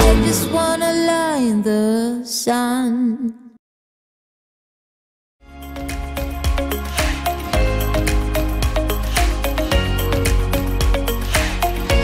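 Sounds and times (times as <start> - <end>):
electronic music with bass and synth: 0.0 - 0.8, 5.5 - 12.0.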